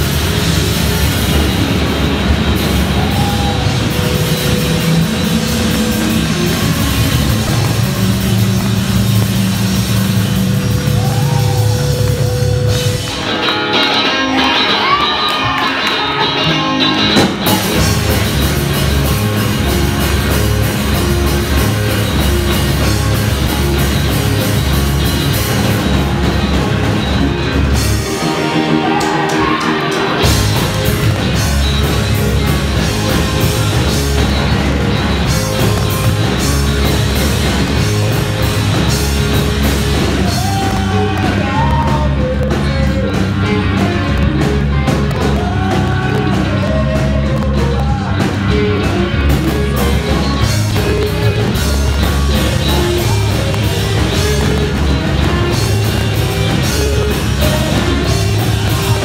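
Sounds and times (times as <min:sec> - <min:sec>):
live rock band playing: 0:00.0 - 0:59.0
person singing: 0:40.0 - 0:59.0.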